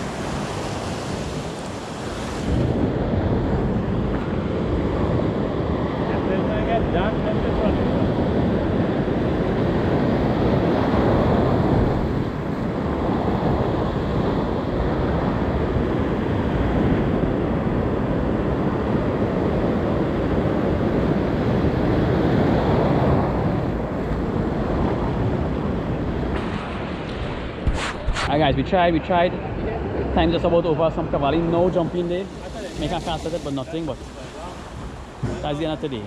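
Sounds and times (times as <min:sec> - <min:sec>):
surf washing onto beach: 0:00.0 - 0:28.6, 0:29.8 - 0:36.0
wind on microphone: 0:00.0 - 0:28.7.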